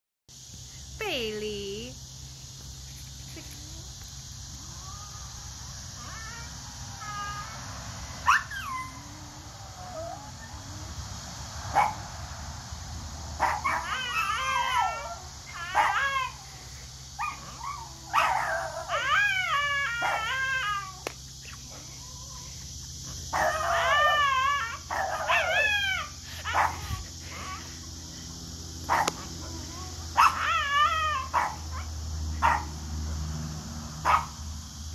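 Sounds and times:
small dog howling and whining: 0:06.0 - 0:07.6, 0:08.2 - 0:10.9, 0:13.4 - 0:16.5, 0:17.2 - 0:22.6, 0:23.3 - 0:27.8, 0:28.9 - 0:32.6
dog yelping: 0:08.2 - 0:10.6, 0:13.4 - 0:16.5, 0:17.2 - 0:28.2, 0:28.9 - 0:32.7, 0:34.0 - 0:34.3.

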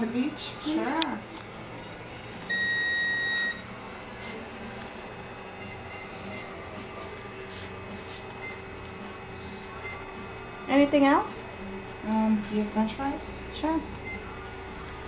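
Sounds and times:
cash register beeping: 0:02.5 - 0:04.4, 0:05.6 - 0:06.8, 0:08.4 - 0:08.8, 0:09.7 - 0:10.1, 0:14.0 - 0:14.4.

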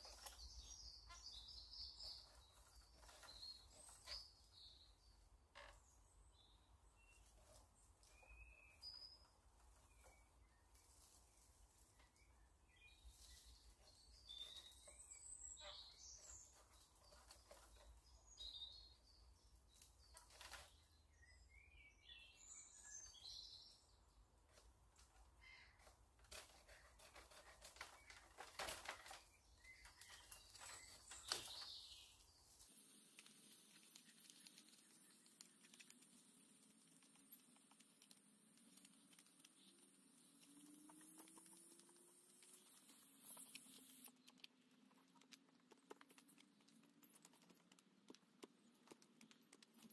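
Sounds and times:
birds chirping faintly: 0:00.0 - 0:49.9.

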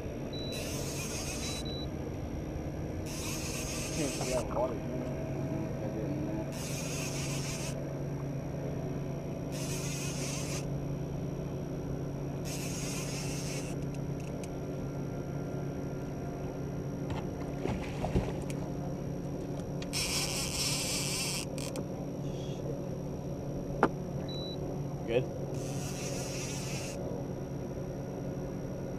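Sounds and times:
outboard motor running: 0:00.0 - 0:28.9
high buzzing bursts: 0:00.3 - 0:04.7, 0:06.5 - 0:07.9, 0:09.5 - 0:10.8, 0:12.4 - 0:13.9, 0:25.5 - 0:27.0.

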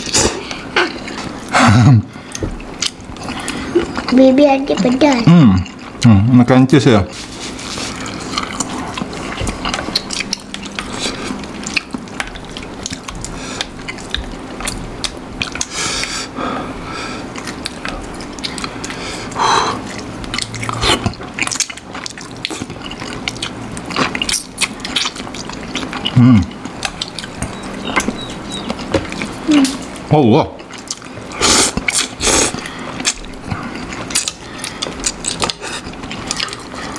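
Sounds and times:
chewing and slurping noodles: 0:07.1 - 0:16.4, 0:17.2 - 0:30.0, 0:30.6 - 0:36.9.

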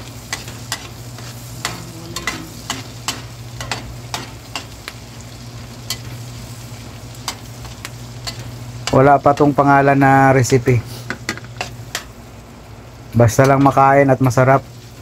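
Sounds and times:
steady low hum: 0:00.0 - 0:13.2
butter sizzling in a wok: 0:00.0 - 0:15.0
metal spatula scraping a pan: 0:00.3 - 0:04.7.

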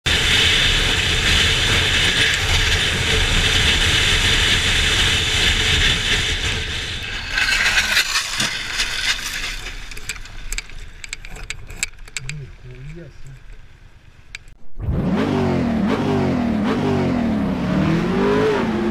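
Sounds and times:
motorcycle engine running: 0:00.1 - 0:07.0
scattered clicks: 0:09.3 - 0:13.6.

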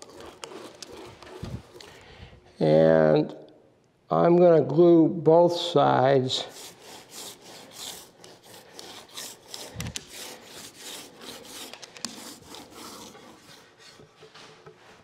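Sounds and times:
foam roller rubbing on wood: 0:00.0 - 0:02.0, 0:06.4 - 0:15.0.

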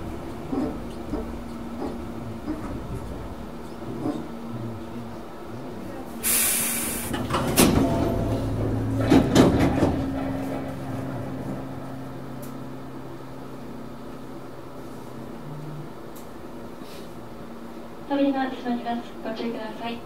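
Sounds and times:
sliding doors clunking: 0:00.0 - 0:04.4, 0:07.0 - 0:12.7
low equipment hum: 0:00.0 - 0:20.0
air hiss: 0:06.2 - 0:07.2.

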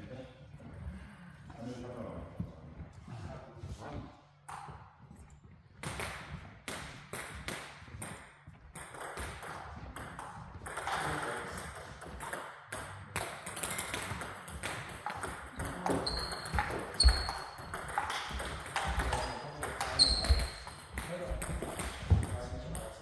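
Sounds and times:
table tennis balls clicking: 0:05.8 - 0:22.8.

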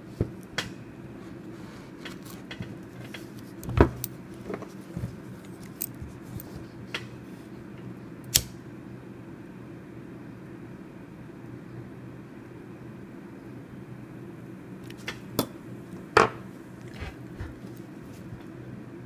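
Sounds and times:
lighter striking click: 0:08.3 - 0:08.6.

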